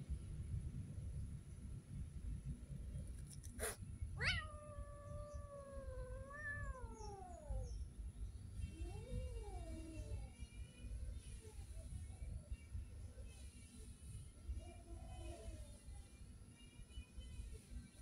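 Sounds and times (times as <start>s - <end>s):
cat meowing: 3.6s - 7.7s.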